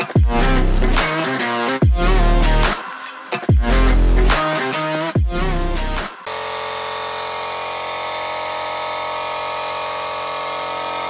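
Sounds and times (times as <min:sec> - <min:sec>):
electronic music with bass sweep: 0:00.0 - 0:11.0
air compressor running: 0:06.2 - 0:11.0.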